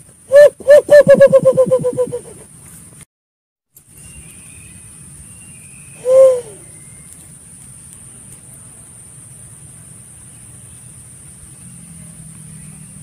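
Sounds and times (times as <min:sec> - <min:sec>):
dove giving deep hoot: 0:00.3 - 0:02.5, 0:06.0 - 0:06.7
steady high hiss: 0:03.8 - 0:13.0.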